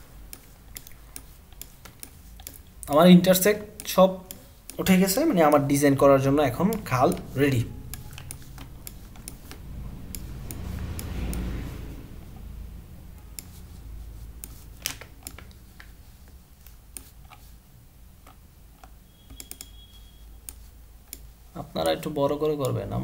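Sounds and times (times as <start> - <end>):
computer mouse clicks: 0.2 - 12.5, 13.1 - 17.5, 18.2 - 22.8
low rushing noise: 5.2 - 15.2.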